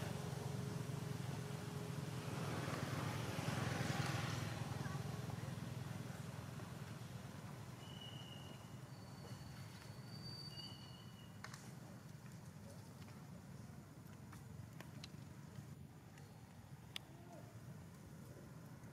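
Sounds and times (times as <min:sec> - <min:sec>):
thin high whistles: 0:07.8 - 0:11.4.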